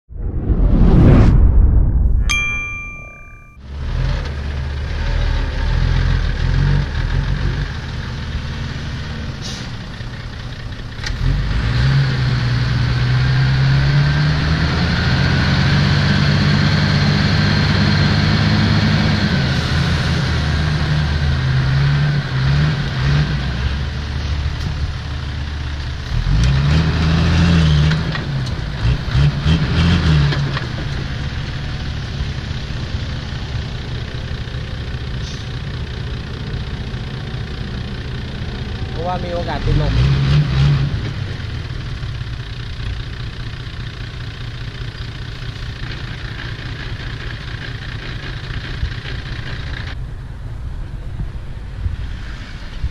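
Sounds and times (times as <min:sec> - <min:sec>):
diesel truck engine revving: 0:03.8 - 0:44.7.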